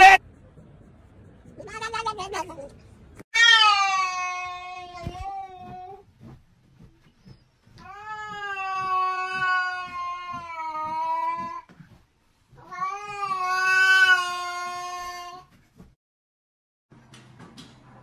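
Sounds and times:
cat yowling: 0.0s - 0.2s, 3.4s - 5.6s.

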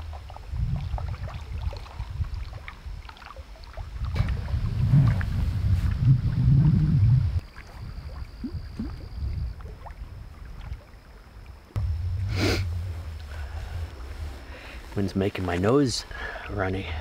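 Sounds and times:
wind buffeting microphone: 0.0s - 3.1s, 3.8s - 10.9s, 11.8s - 17.0s
person sniffing: 12.2s - 14.9s.

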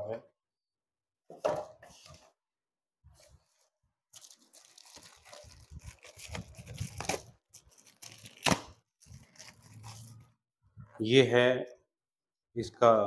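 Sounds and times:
plastic packaging crinkling: 4.1s - 10.3s.

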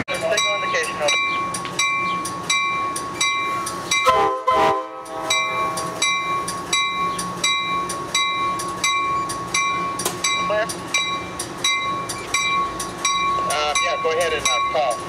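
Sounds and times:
train bell ringing: 0.0s - 15.0s
train horn blast: 4.0s - 5.4s.

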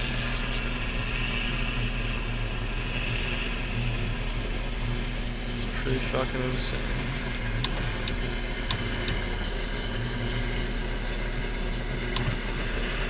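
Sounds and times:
power line arcing hum: 0.0s - 13.0s.

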